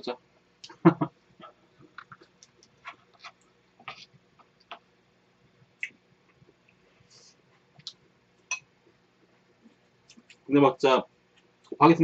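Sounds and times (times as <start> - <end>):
chewing and mouth clicks: 1.9 - 4.8.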